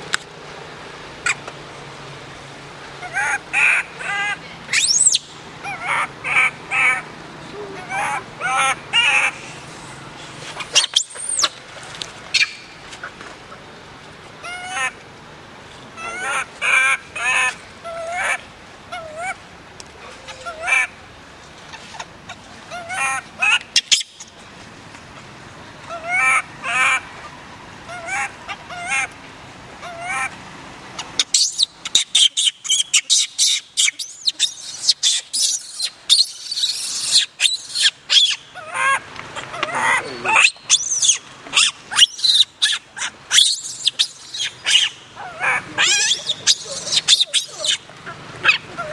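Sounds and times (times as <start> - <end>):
baby monkey crying and shrieking: 3.0 - 7.0, 10.6 - 11.5, 31.2 - 48.9.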